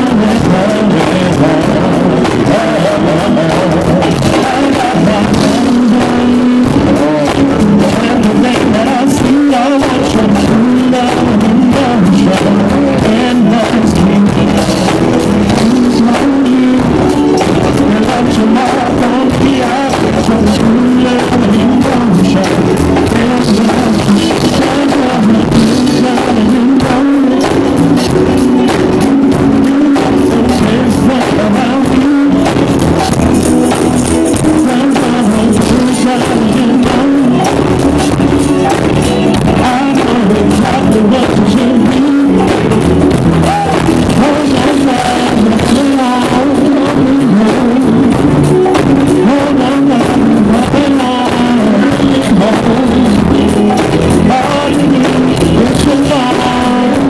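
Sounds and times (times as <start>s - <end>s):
live band playing loudly: 0.0s - 57.0s
people singing: 0.0s - 57.0s.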